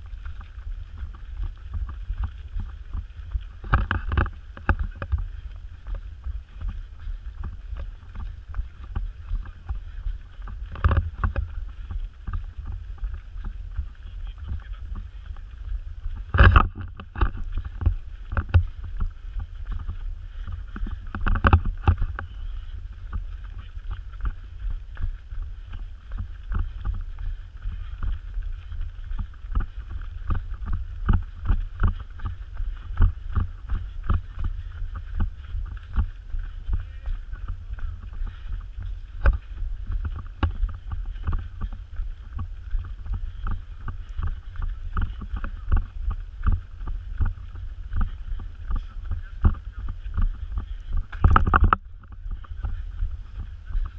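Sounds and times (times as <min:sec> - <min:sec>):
running footsteps on dirt trail: 0:00.0 - 0:53.9
wind rumble on microphone: 0:00.0 - 0:53.9
camera knocking: 0:51.1 - 0:51.8.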